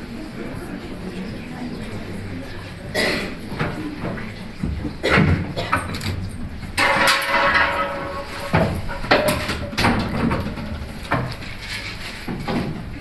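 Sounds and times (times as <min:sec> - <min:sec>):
cans and bottles clattering: 0:03.0 - 0:13.0.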